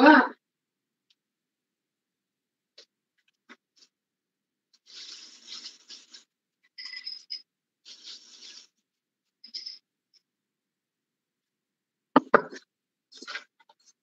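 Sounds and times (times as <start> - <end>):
scratchy rustling: 4.9 - 6.3, 7.9 - 8.8.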